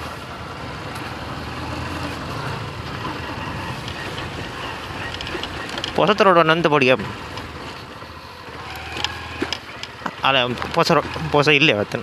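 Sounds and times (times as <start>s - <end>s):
motor scooter engine running: 0.0s - 12.0s
road noise: 0.0s - 12.0s.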